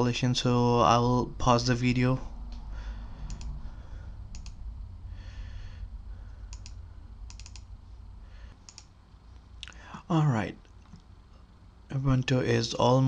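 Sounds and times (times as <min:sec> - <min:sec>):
low steady hum: 0:00.0 - 0:13.0
computer mouse clicks: 0:03.2 - 0:03.6, 0:04.3 - 0:04.6, 0:06.5 - 0:07.7, 0:08.5 - 0:08.9.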